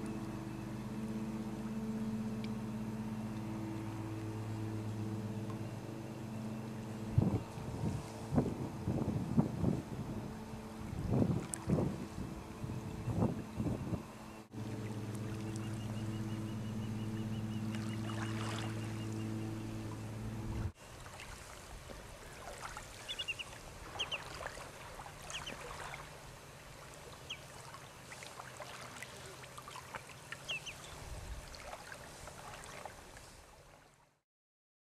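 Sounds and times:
low multi-tone hum: 0:00.0 - 0:34.2
waves lapping on pebbles: 0:20.8 - 0:33.9
high bird calls: 0:23.0 - 0:24.3, 0:25.3 - 0:25.6, 0:30.4 - 0:31.0.

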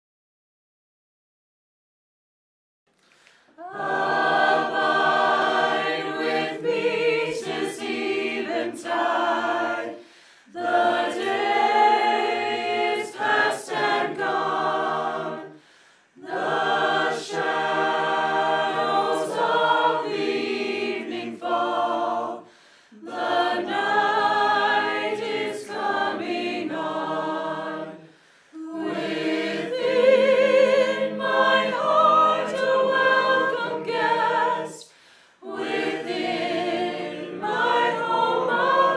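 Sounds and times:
choir singing a hymn: 0:03.5 - 0:38.9.

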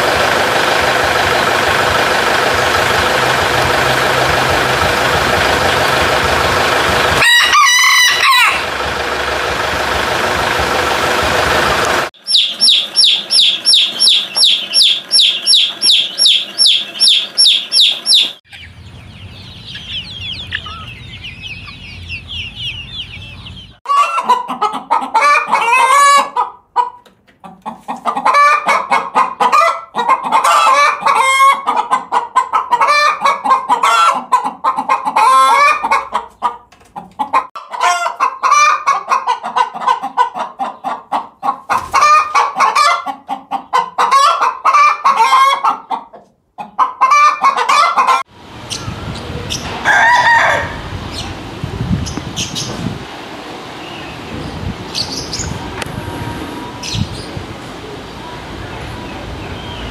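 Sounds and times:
hens clucking: 0:00.0 - 0:51.4
faint high chirps: 0:12.2 - 0:18.7
fast high chirping: 0:12.2 - 0:18.7.

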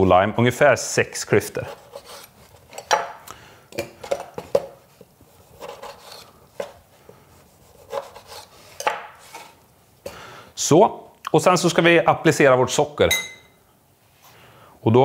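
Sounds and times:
knife cutting lime: 0:01.6 - 0:03.2, 0:05.5 - 0:06.8, 0:07.6 - 0:09.5.

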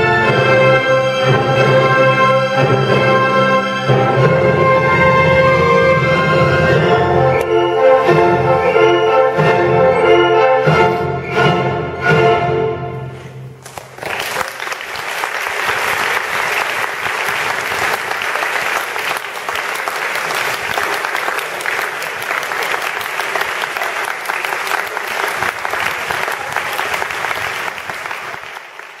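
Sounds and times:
audience applauding: 0:13.6 - 0:29.0.

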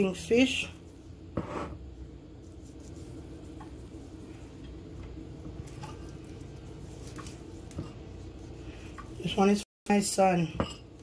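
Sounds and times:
hands rubbing on plastic bag: 0:02.3 - 0:04.6.

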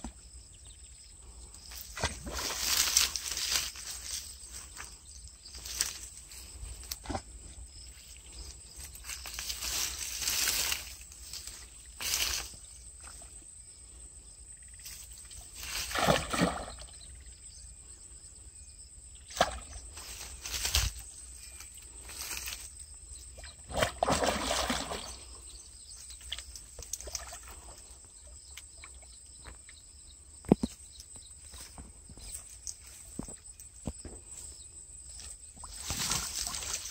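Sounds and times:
fish splashing at water surface: 0:23.7 - 0:25.2.

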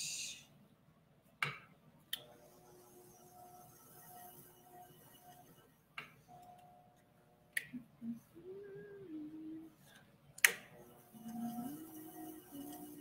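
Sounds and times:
faint wavering low hum: 0:02.4 - 0:10.2, 0:10.8 - 0:13.0.

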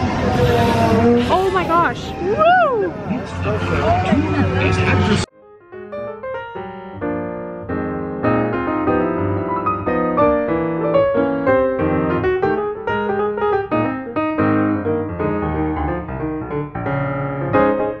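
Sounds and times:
piano music: 0:05.3 - 0:18.0.

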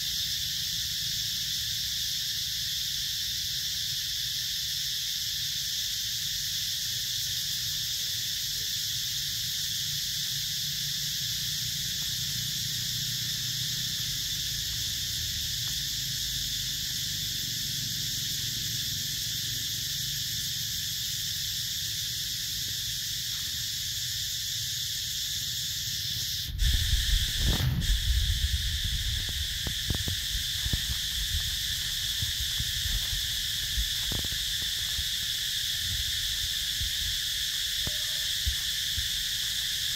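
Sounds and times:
insect chorus buzzing: 0:00.0 - 0:39.9
low rumble: 0:26.6 - 0:34.4.

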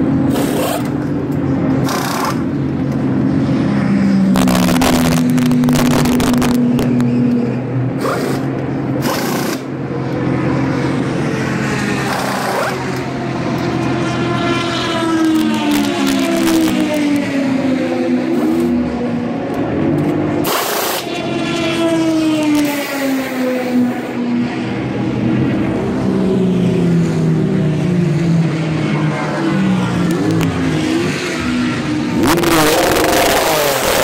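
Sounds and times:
race engine noise: 0:00.0 - 0:34.0
pneumatic impact wrenches: 0:00.3 - 0:01.1, 0:01.8 - 0:02.5, 0:08.0 - 0:09.7, 0:20.4 - 0:21.1.

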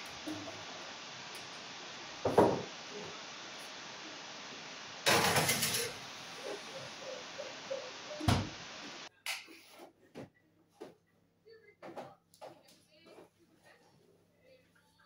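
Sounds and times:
steady hiss: 0:00.0 - 0:09.1.

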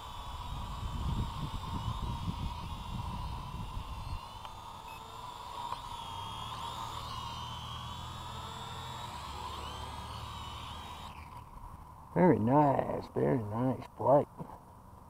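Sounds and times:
drone propellers whining: 0:00.0 - 0:13.2.

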